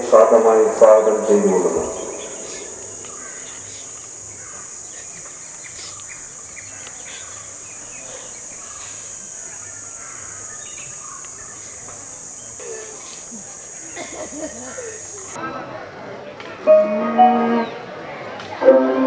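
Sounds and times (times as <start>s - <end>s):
insects droning: 0.0s - 15.4s
bird chirps: 1.4s - 14.1s.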